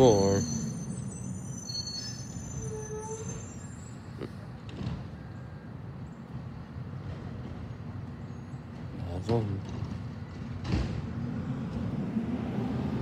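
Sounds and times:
faint high-pitched squeals: 0:00.0 - 0:04.2.

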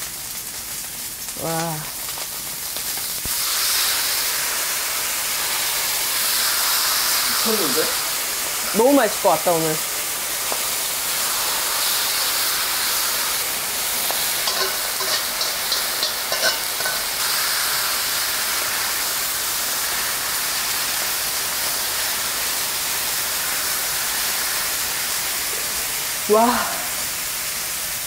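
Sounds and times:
meat sizzling on a griddle: 0:00.0 - 0:28.0
metal tongs clicking and scraping: 0:14.4 - 0:17.1.

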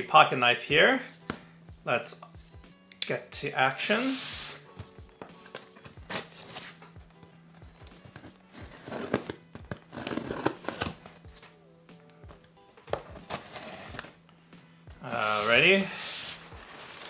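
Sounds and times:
soft background music: 0:00.0 - 0:17.0
knife slitting packing tape: 0:08.1 - 0:11.0.

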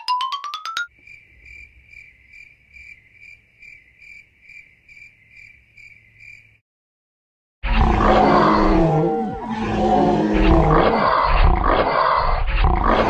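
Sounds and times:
crickets chirping: 0:00.9 - 0:06.6.

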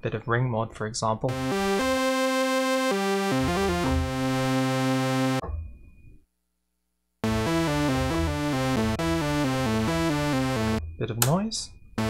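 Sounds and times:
buzzy synthesizer lead: 0:01.3 - 0:05.4, 0:07.2 - 0:10.8.

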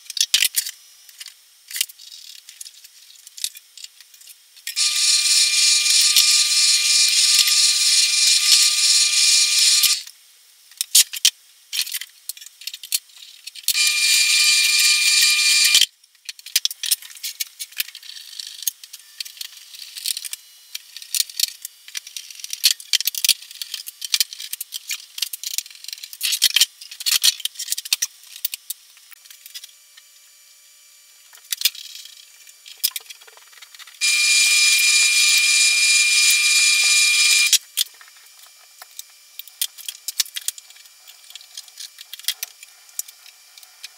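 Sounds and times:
drill press drilling: 0:04.8 - 0:10.0, 0:13.7 - 0:15.8, 0:34.0 - 0:37.6.

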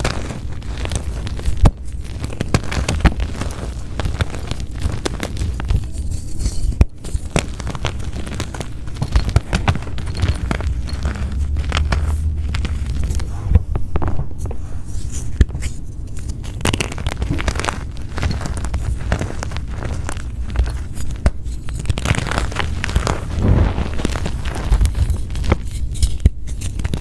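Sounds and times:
chalk crunching and crackling: 0:00.0 - 0:27.0
dull low rumble: 0:08.3 - 0:15.0, 0:22.7 - 0:25.6.

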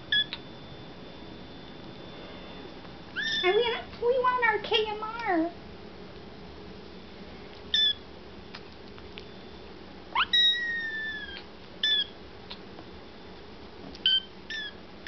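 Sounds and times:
kittens meowing: 0:03.2 - 0:03.5, 0:07.7 - 0:08.0, 0:10.2 - 0:12.1, 0:14.0 - 0:14.8.

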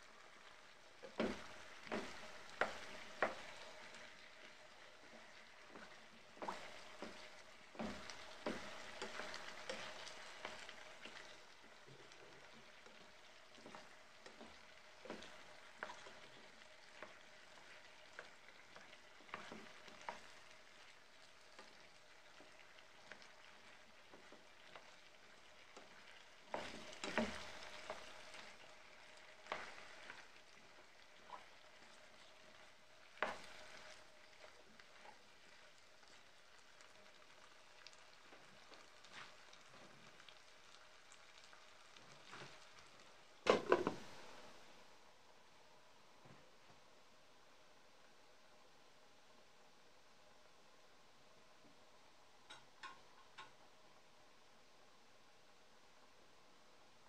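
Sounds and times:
potatoes sizzling in oil: 0:00.0 - 0:45.0.

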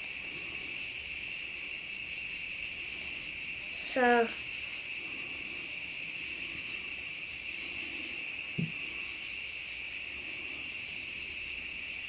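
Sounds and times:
crickets chirping: 0:00.0 - 0:12.0
knock: 0:08.6 - 0:08.8.

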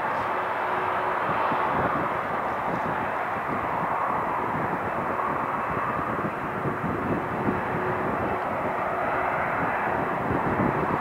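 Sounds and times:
jet engines running: 0:00.0 - 0:11.0.

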